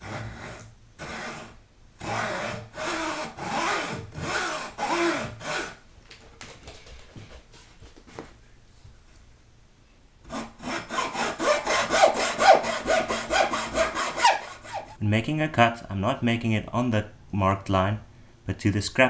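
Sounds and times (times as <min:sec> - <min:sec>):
hacksaw cutting wood: 0:00.0 - 0:05.8, 0:10.3 - 0:15.0.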